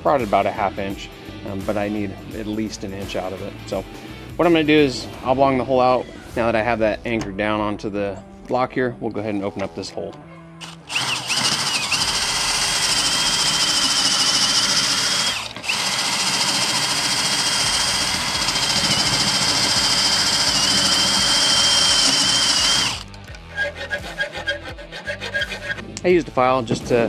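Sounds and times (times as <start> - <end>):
cordless drill whining into metal: 10.6 - 23.4.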